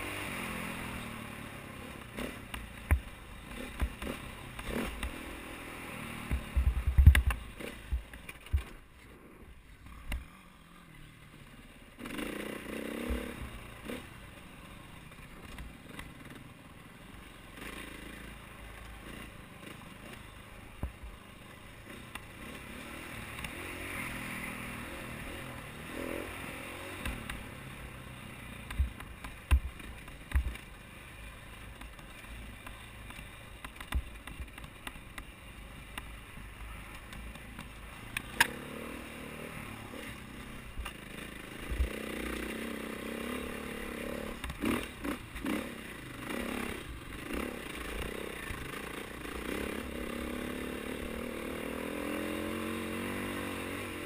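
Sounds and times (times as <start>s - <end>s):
dirt bike engine revving: 0.0s - 2.5s, 3.5s - 8.0s, 12.0s - 14.2s, 21.9s - 28.0s, 37.9s - 54.0s
sharp thumps and knocks: 6.2s - 8.8s, 28.7s - 30.6s.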